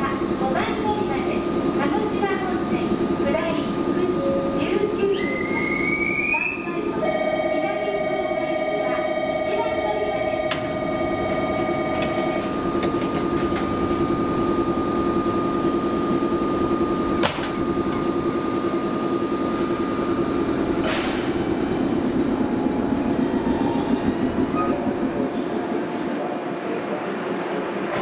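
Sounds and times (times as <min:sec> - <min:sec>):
electric train equipment humming: 0:00.0 - 0:28.0
train pulling away: 0:00.0 - 0:28.0
train doors shutting thud: 0:10.5 - 0:10.8, 0:17.2 - 0:18.1, 0:20.8 - 0:21.6
hissing air burst: 0:20.8 - 0:21.5.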